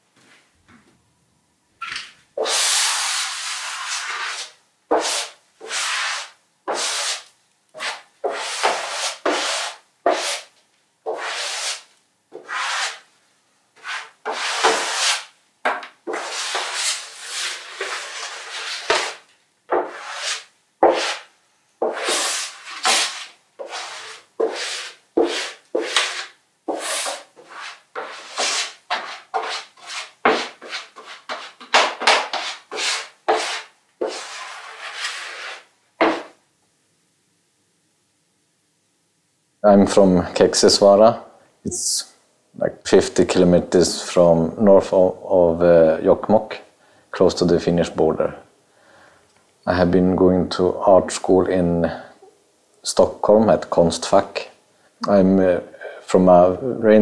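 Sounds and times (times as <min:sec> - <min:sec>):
scraper dragged through wet paint: 0:02.4 - 0:10.5, 0:11.1 - 0:13.1, 0:13.8 - 0:15.3, 0:16.1 - 0:36.4.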